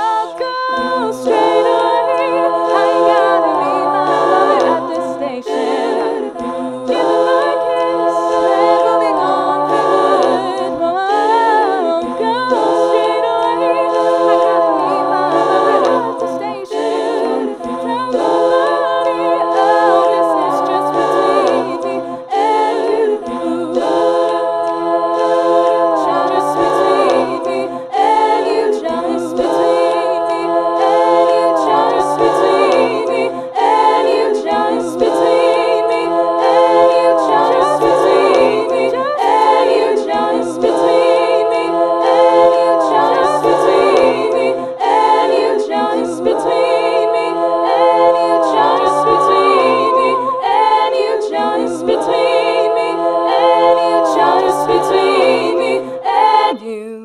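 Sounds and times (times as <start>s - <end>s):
layered a cappella vocal harmonies: 0.0s - 57.0s.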